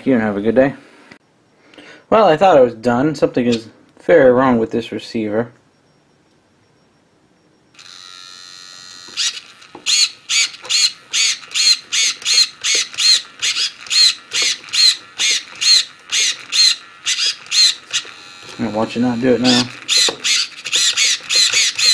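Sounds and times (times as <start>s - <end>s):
servo whining: 5.7s - 21.9s.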